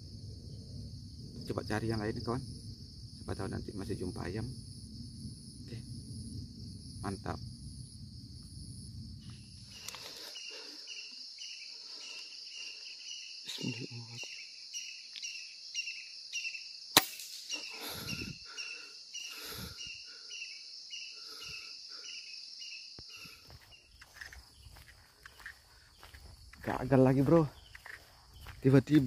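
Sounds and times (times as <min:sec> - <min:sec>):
insects chirping: 0:00.0 - 0:29.0.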